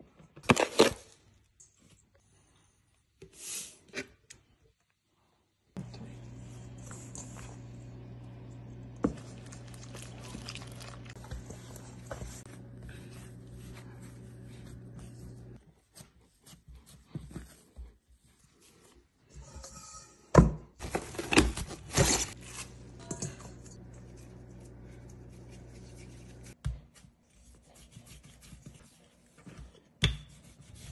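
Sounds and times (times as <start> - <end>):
steady low hum: 5.8 - 15.6, 22.3 - 26.6
hands kneading dough: 9.1 - 19.3, 23.9 - 30.9.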